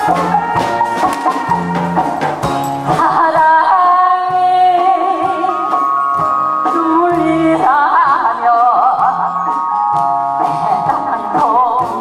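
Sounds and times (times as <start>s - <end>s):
backing track with drum beat: 0.0s - 12.0s
woman singing into microphone: 2.9s - 9.7s, 10.4s - 12.0s.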